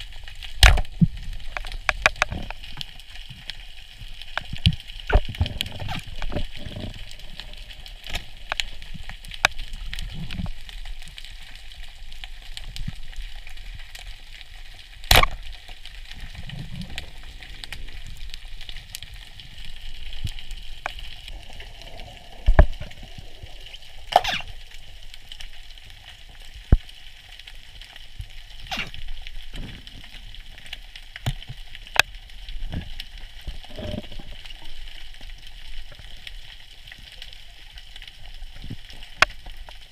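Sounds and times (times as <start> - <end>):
underwater crackle: 0.0 - 39.9
sharp underwater clicks: 0.1 - 27.2, 27.8 - 37.2, 37.8 - 39.9.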